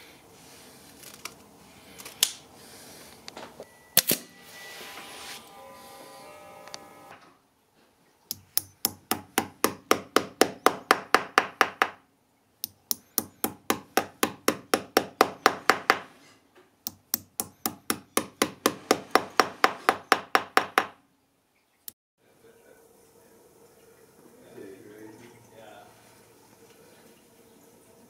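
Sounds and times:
hammer tapping nails into wood: 0:08.3 - 0:12.0, 0:12.6 - 0:16.1, 0:16.9 - 0:21.0.

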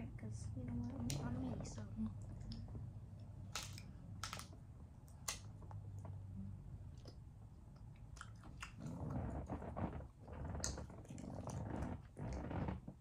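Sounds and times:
plastic candy wrappers crinkling: 0:03.5 - 0:05.5.

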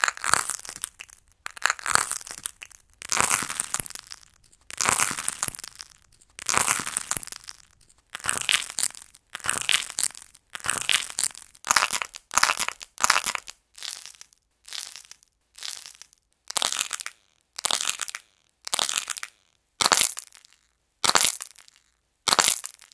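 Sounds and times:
clay cracking and crunching: 0:00.0 - 0:17.0.

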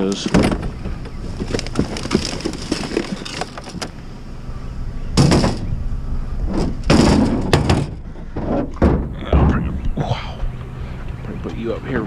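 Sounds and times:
loud bumps in truck bed: 0:00.2 - 0:03.8, 0:05.2 - 0:05.8, 0:06.5 - 0:09.8.

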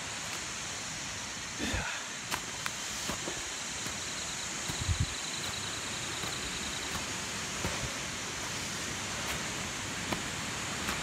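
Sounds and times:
steady rushing noise: 0:00.0 - 0:11.0
footsteps on leaf litter: 0:02.2 - 0:11.0.

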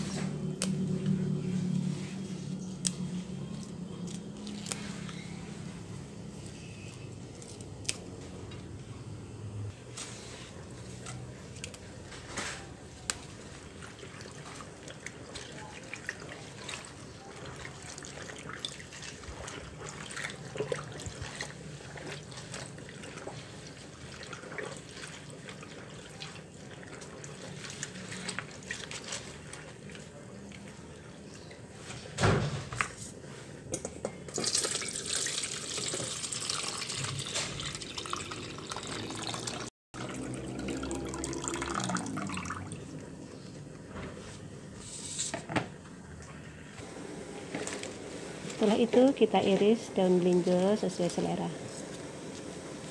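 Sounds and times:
hands splashing leaves in water: 0:02.8 - 0:05.1
water dripping: 0:34.4 - 0:43.0.

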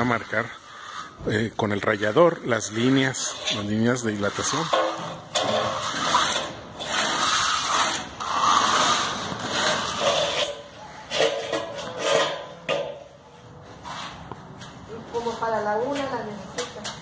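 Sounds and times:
edger scraping concrete: 0:00.0 - 0:13.1
trowel scraping wet concrete: 0:00.1 - 0:13.1.

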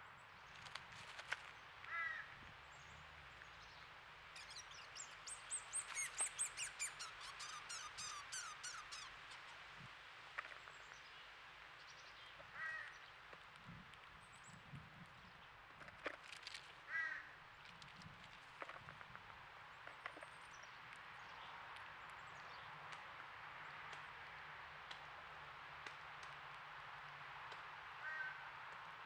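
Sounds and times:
crows cawing: 0:01.9 - 0:02.4, 0:12.5 - 0:13.0, 0:16.9 - 0:17.4, 0:28.0 - 0:28.5.

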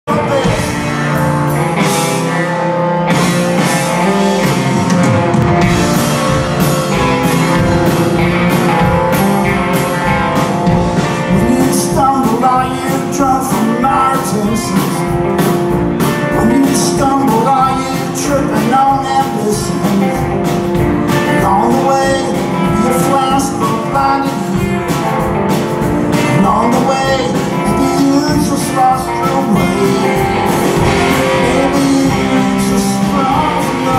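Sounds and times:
person singing: 0:00.0 - 0:02.8, 0:11.0 - 0:25.2, 0:26.2 - 0:33.9
bass guitar: 0:00.0 - 0:33.9
drums: 0:00.0 - 0:33.9
electric guitars: 0:00.0 - 0:33.9.

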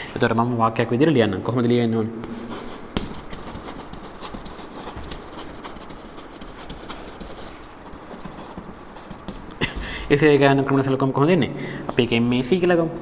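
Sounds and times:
chalk tapping and scratching on chalkboard: 0:02.2 - 0:10.2, 0:11.9 - 0:12.7.

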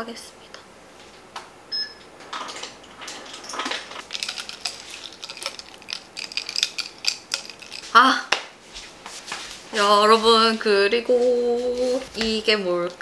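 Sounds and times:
ice cubes clinking into glass: 0:04.0 - 0:08.0
straw stirring ice in mug: 0:04.0 - 0:08.1.

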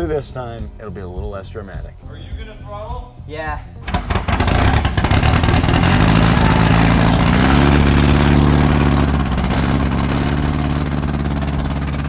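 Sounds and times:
engine running and revving: 0:03.9 - 0:12.0.

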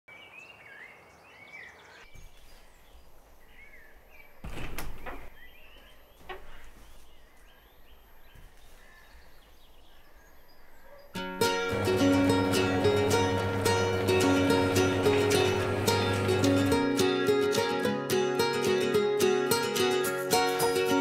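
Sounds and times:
small birds chirping: 0:00.1 - 0:16.7.

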